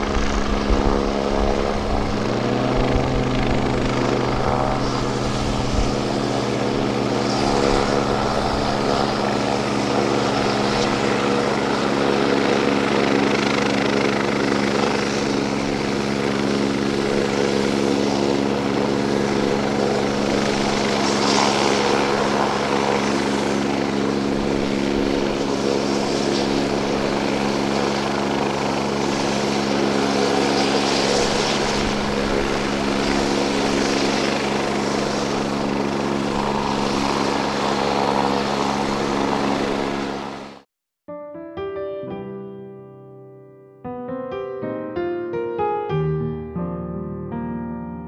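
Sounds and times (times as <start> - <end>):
propeller plane engine droning: 0.0 - 40.6
hiss: 20.1 - 23.6.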